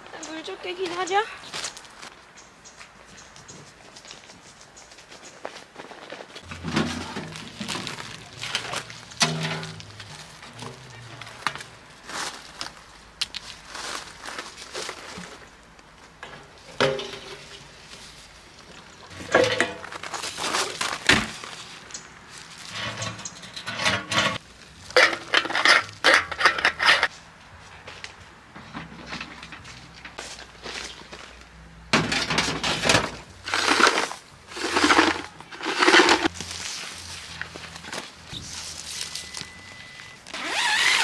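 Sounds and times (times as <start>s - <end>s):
footsteps on gravel: 0.8s - 2.2s, 3.2s - 15.6s.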